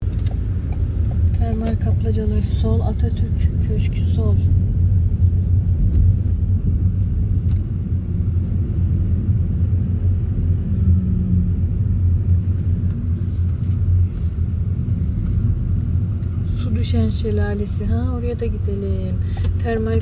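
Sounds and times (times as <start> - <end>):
car engine and road noise: 0.0 - 20.0.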